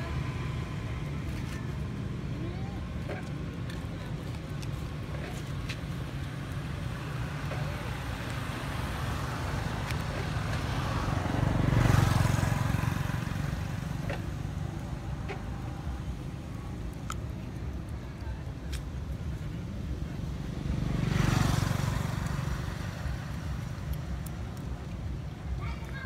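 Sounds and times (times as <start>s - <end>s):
vehicle passing by: 6.2s - 16.6s, 20.1s - 25.2s.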